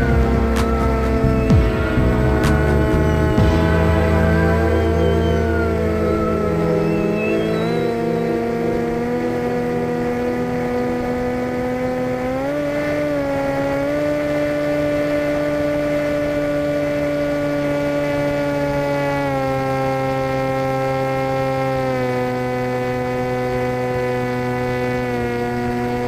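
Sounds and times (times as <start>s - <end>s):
model aircraft motor whine: 0.0s - 26.0s.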